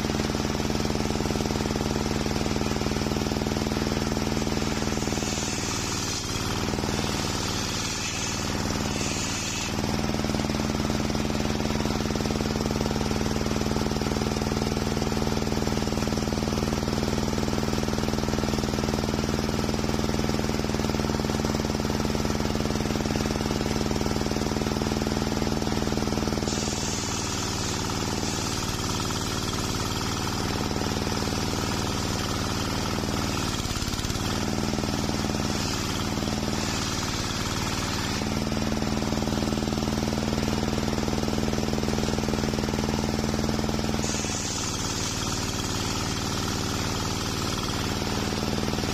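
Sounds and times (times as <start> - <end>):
circular saw ripping a log: 2.8 - 11.8, 26.2 - 30.7, 31.3 - 38.8, 43.8 - 48.8.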